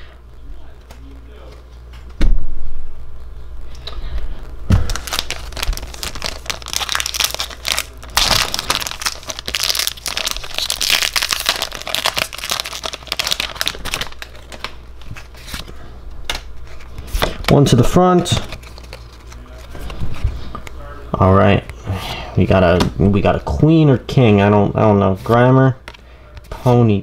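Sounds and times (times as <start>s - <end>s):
foil wrapper crinkling and tearing: 4.8s - 15.7s, 16.7s - 20.0s.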